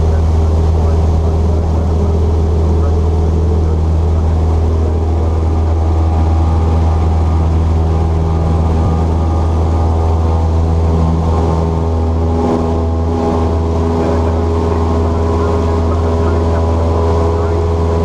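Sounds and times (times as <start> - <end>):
airplane engine droning in cockpit: 0.0 - 18.0.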